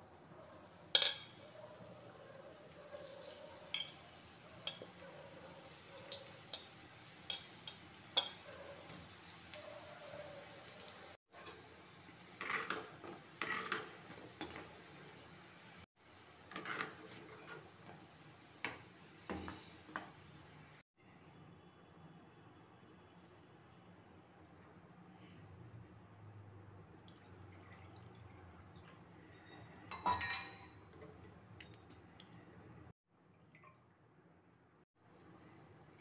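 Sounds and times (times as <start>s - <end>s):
food deep-frying in hot oil: 2.6s - 20.8s.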